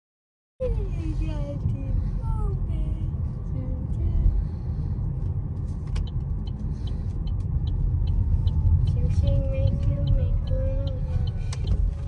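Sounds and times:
light even ticking: 5.9s - 12.0s.

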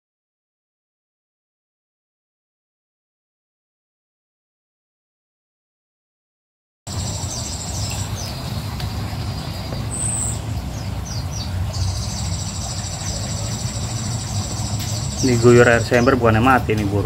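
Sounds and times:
insect trill: 6.9s - 10.5s, 11.8s - 16.2s
low background rumble: 6.9s - 17.0s.

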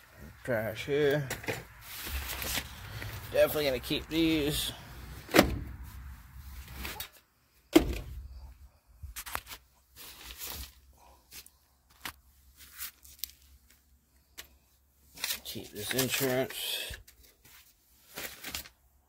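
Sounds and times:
paper rustling: 1.8s - 3.3s, 9.2s - 13.8s, 15.1s - 18.8s.

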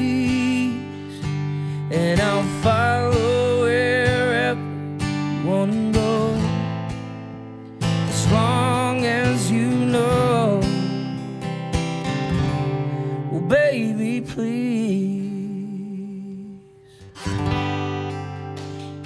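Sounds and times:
man singing with vibrato: 0.0s - 6.7s, 8.1s - 11.3s, 13.0s - 16.9s
acoustic guitar strumming: 0.0s - 19.0s.

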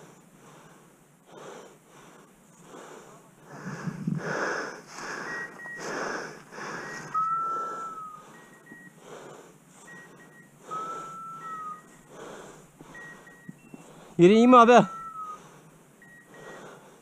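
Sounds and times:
person breathing heavily: 0.0s - 14.3s, 15.0s - 17.0s
short high beeps: 6.8s - 9.0s, 9.9s - 12.1s, 13.0s - 13.8s, 14.6s - 15.4s, 16.0s - 16.6s.

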